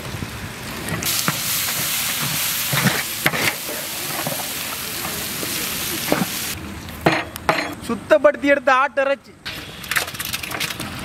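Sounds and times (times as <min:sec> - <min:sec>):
onions sizzling in oil: 0:00.0 - 0:06.6
spoon scraping a pan: 0:01.1 - 0:05.3.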